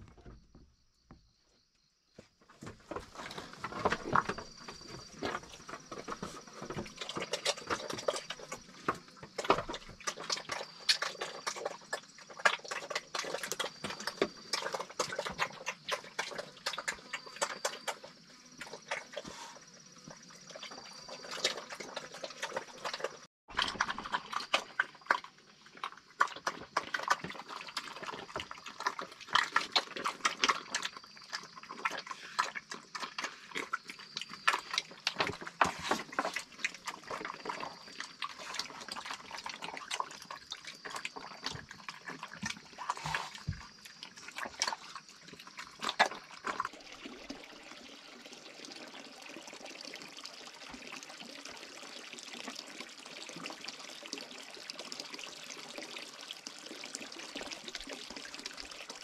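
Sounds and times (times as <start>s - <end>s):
pigs eating from a trough: 2.5s - 59.0s
water pouring into wooden trough: 46.2s - 59.0s.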